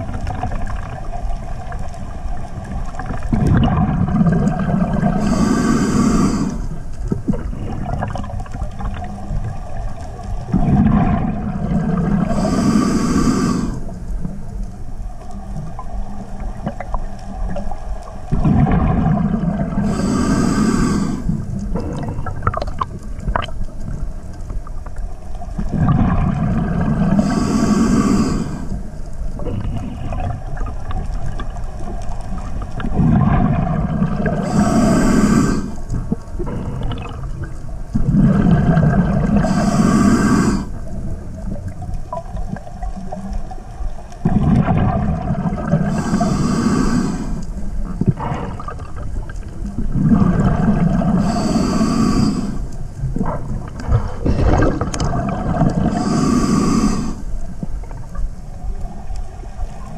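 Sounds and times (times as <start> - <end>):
rumbling exhaust bubbles: 0.0 - 6.0, 7.0 - 12.6, 18.3 - 24.1, 25.6 - 27.4, 32.4 - 42.9, 44.2 - 47.2, 47.8 - 58.8
diver breathing through regulator: 4.5 - 8.0, 10.6 - 14.0, 18.4 - 22.4, 26.8 - 30.3, 33.0 - 37.3, 38.0 - 41.0, 45.2 - 49.2, 50.0 - 57.4.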